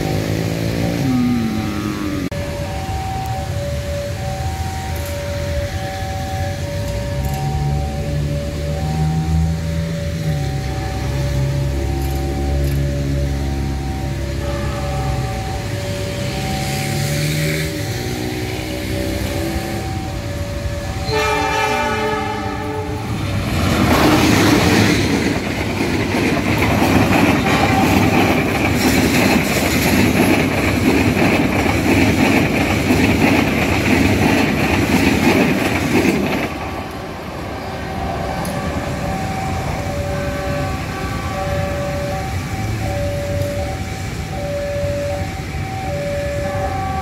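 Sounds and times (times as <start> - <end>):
train rumbling: 0.0 - 47.0
wheels clacking over rail joints: 4.4 - 44.4
train horn blast: 21.0 - 23.5, 27.4 - 28.5.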